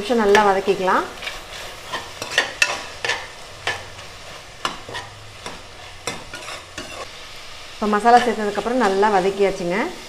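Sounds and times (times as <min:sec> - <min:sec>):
light sizzle of frying: 0:00.0 - 0:10.0
metal spatula scraping a pot: 0:01.1 - 0:07.1, 0:08.1 - 0:09.2.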